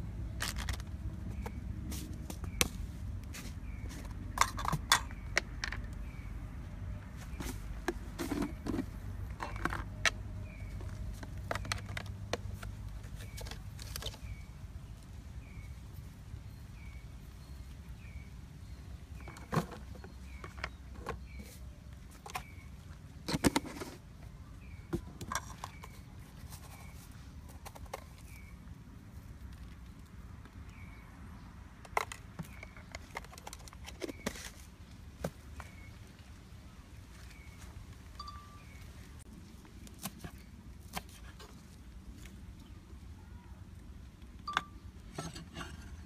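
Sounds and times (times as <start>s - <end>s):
glass jar and utensils clinking: 44.5s - 46.0s.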